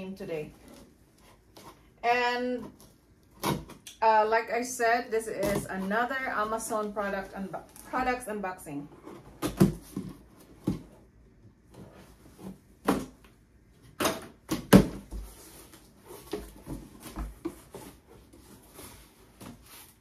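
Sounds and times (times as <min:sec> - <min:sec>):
cardboard rustling: 0:08.9 - 0:20.0.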